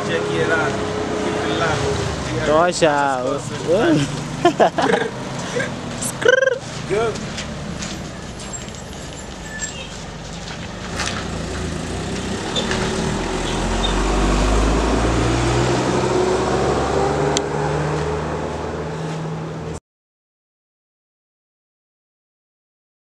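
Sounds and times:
vehicle engine rumble: 0.0s - 19.8s
rising engine whine: 10.8s - 19.8s.

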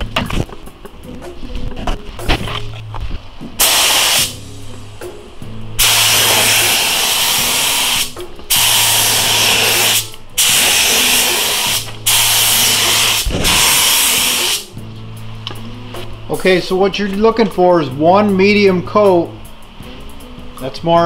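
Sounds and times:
spray gun air hiss: 3.6s - 4.4s, 5.8s - 14.8s.

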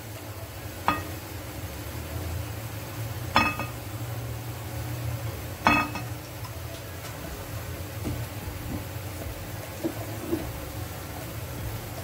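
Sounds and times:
low steady hum: 0.0s - 12.0s
glass bowl clinking: 0.8s - 1.2s, 3.3s - 3.8s, 5.6s - 6.2s.

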